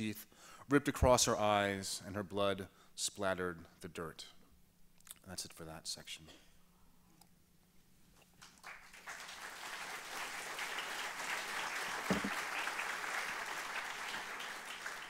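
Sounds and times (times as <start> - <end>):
audience applauding: 8.4 - 15.0
glass set down on wood: 12.1 - 12.3.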